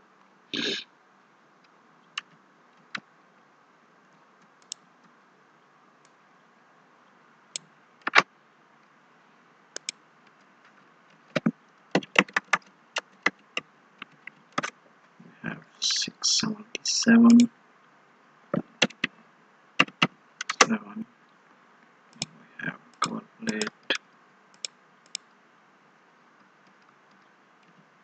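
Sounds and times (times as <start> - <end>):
keyboard keystrokes: 11.3 - 13.4, 18.8 - 19.1, 19.8 - 20.8.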